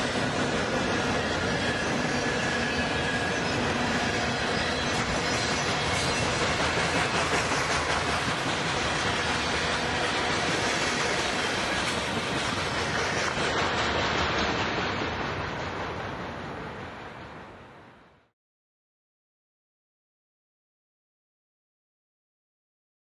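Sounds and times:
model train wheels clattering: 4.9s - 14.8s.

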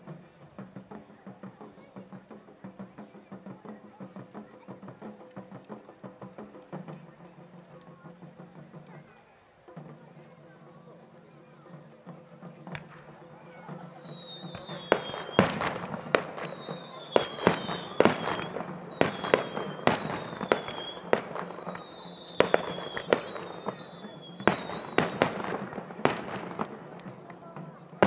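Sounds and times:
fireworks bangs: 12.6s - 28.0s
fireworks whistling: 12.6s - 28.0s.

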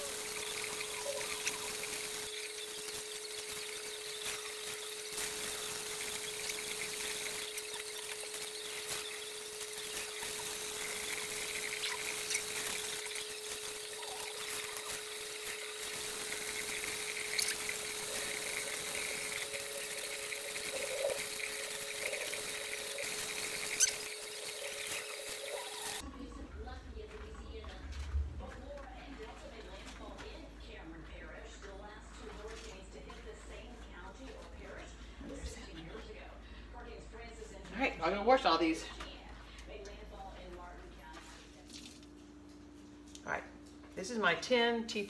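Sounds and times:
faucet running into sink: 0.0s - 26.0s.

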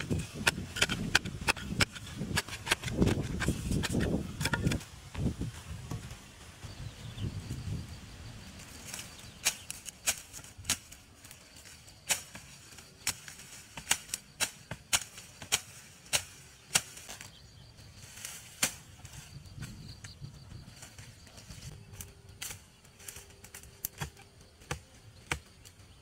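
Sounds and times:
dry grass stems snapping: 8.8s - 17.4s, 21.0s - 25.8s.

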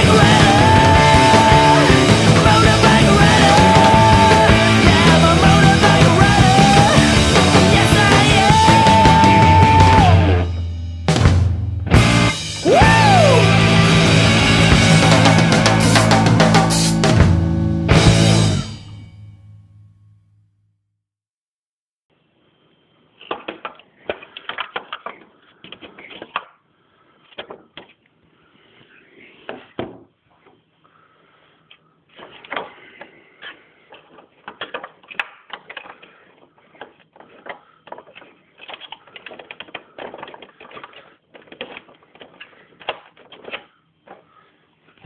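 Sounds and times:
plastic toy parts rattling: 33.9s - 44.2s.

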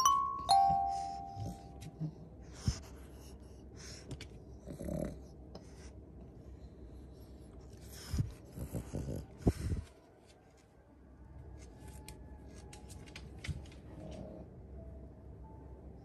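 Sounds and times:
two-note chime: 0.0s - 1.8s
dog breathing noisily: 1.3s - 10.0s.

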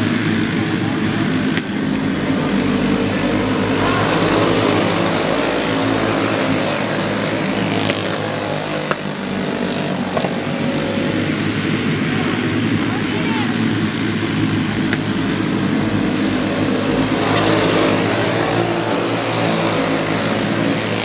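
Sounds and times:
go-kart engines buzzing: 0.0s - 21.0s.

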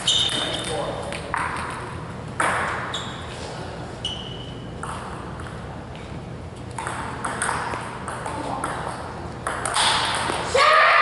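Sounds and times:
sneakers squeaking on floor: 0.0s - 1.7s, 2.4s - 5.4s.

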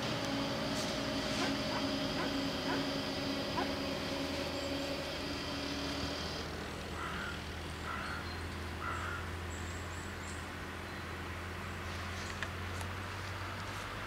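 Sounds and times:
barrier drive whining: 0.0s - 8.5s.

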